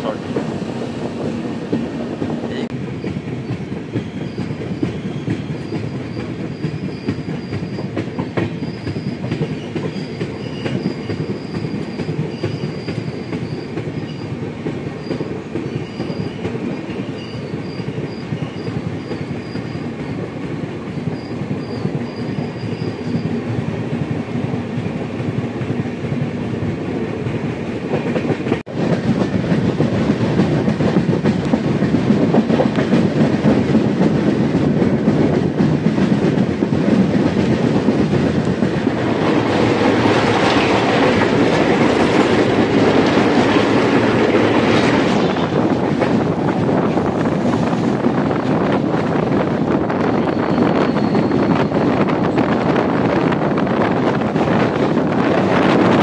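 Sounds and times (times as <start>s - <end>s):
train wheels rumbling on track: 0.0s - 56.0s
high squeal: 50.1s - 51.8s.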